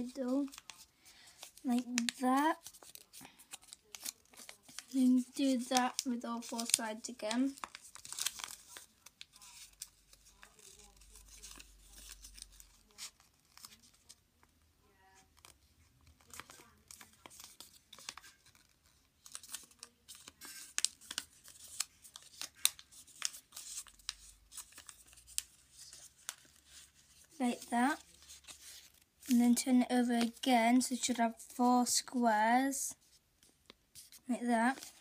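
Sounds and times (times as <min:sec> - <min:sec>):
paper being folded and crinkling: 0:00.0 - 0:14.2, 0:15.2 - 0:35.0.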